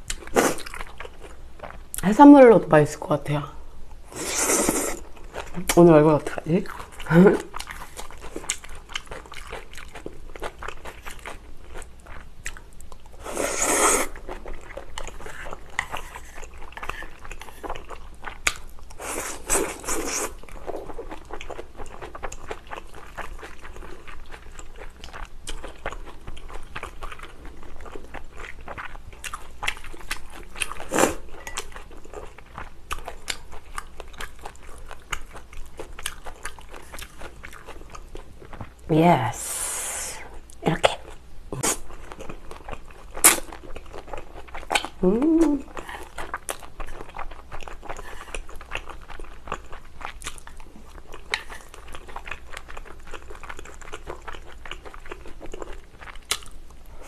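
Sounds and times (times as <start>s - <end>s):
wet chewing and biting: 41.6s - 56.6s.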